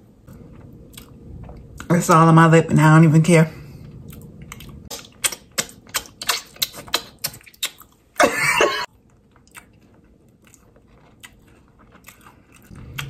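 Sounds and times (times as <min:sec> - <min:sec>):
person chewing: 0:00.2 - 0:01.9, 0:03.6 - 0:13.0
lip-smacks and mouth clicks: 0:04.0 - 0:08.0.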